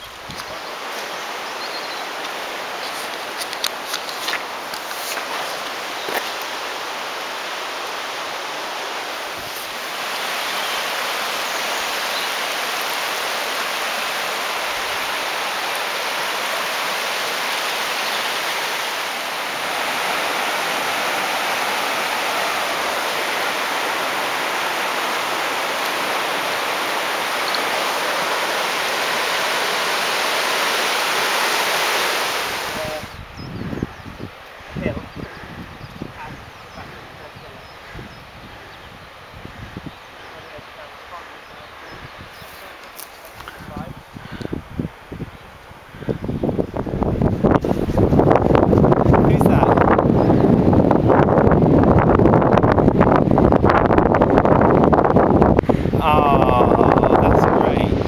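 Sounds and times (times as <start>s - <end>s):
river rapids roaring: 0.0s - 33.3s, 34.3s - 44.2s, 55.8s - 58.0s.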